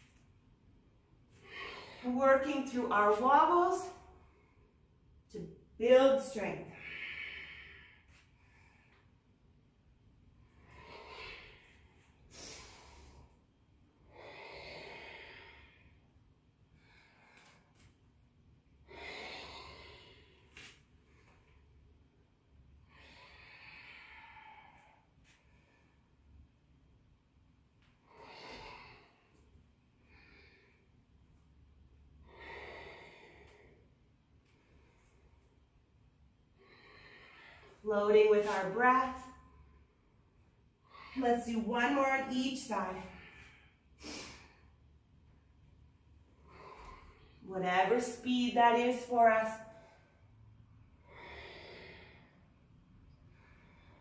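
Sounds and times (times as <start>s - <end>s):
woman breathing: 1.2s - 5.0s, 6.6s - 9.4s, 10.3s - 18.0s, 18.7s - 26.4s, 27.8s - 31.3s, 32.2s - 42.1s, 42.7s - 54.0s
woman breathing hard: 6.7s - 9.2s, 10.5s - 16.1s, 18.8s - 21.4s, 22.9s - 26.1s, 28.0s - 31.0s, 32.2s - 33.9s, 51.0s - 54.0s.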